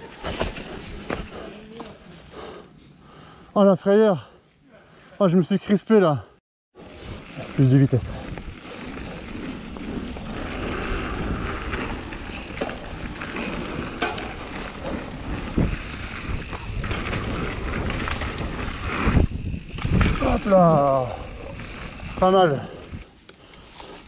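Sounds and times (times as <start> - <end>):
bike tyre noise: 0.0 - 3.4, 6.8 - 24.0
wind rushing over microphone: 6.9 - 23.0
bike knocking and rattling: 7.0 - 22.7.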